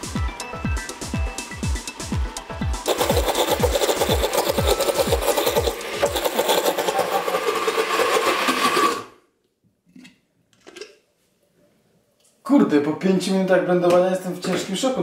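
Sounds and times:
blender grinding peanuts: 2.8s - 9.2s.

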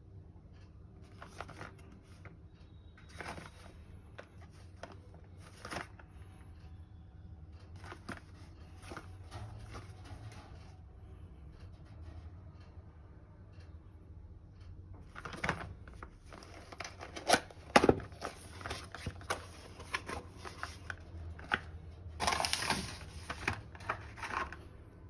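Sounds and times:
cardboard box rustling: 16.3s - 21.6s, 22.2s - 24.6s.

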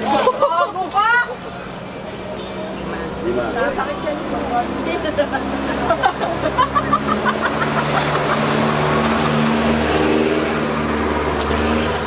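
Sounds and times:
street noise: 0.0s - 12.0s
vehicle engine running: 0.0s - 12.0s.

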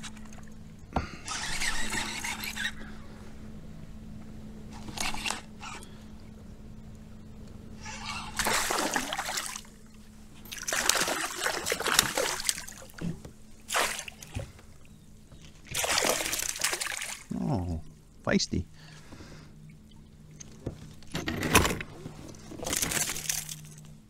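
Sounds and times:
fish thrashing and splashing: 8.0s - 9.7s, 10.5s - 13.0s, 13.7s - 14.4s, 15.6s - 17.3s, 22.5s - 23.8s
fish splashing into net: 8.4s - 9.7s, 10.5s - 12.9s, 13.7s - 14.3s, 15.7s - 17.3s.

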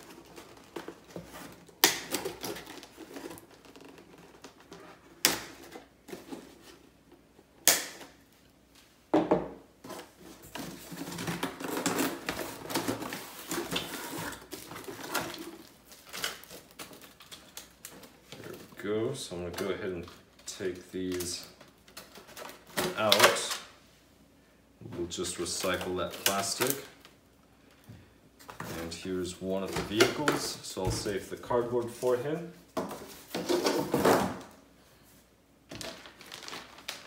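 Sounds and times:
cardboard and plastic wrap rustling: 0.0s - 7.6s, 9.8s - 23.7s, 28.4s - 34.6s, 35.7s - 37.0s.

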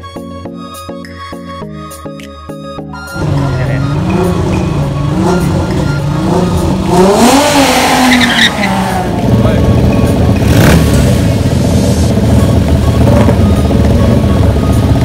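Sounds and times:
motorcycles idling: 3.1s - 15.0s
race car engine revving: 3.2s - 15.0s
tyres squealing: 7.6s - 8.9s.

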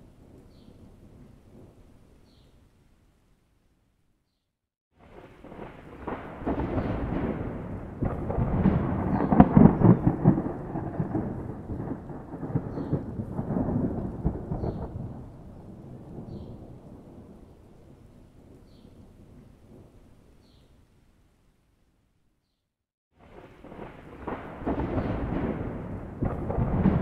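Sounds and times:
thunder rumbling: 5.0s - 20.0s, 23.2s - 27.0s.

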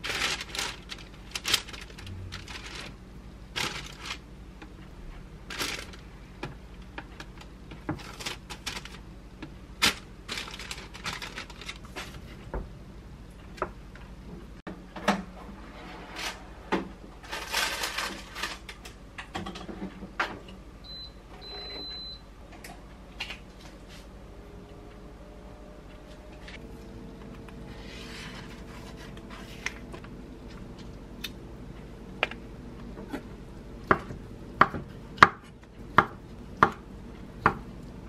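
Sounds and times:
parchment paper crinkling: 0.0s - 4.3s, 5.4s - 6.1s, 7.0s - 9.0s, 9.8s - 12.2s
oven control panel beeps: 20.8s - 22.3s.

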